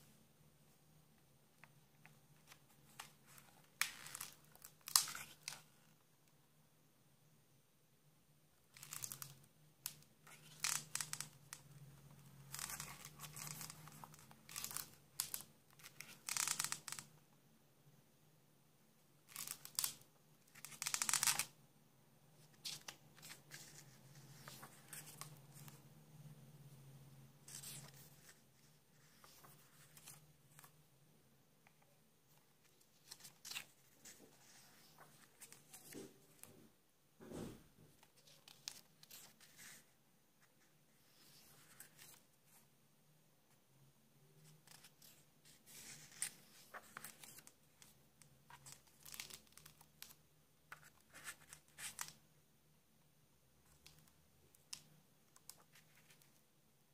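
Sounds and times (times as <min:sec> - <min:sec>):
book pages turning: 0:02.0 - 0:05.8, 0:08.7 - 0:11.6, 0:12.2 - 0:17.1, 0:19.3 - 0:21.5, 0:22.4 - 0:25.8, 0:27.5 - 0:30.8, 0:31.6 - 0:36.5, 0:37.3 - 0:42.6, 0:44.4 - 0:52.2.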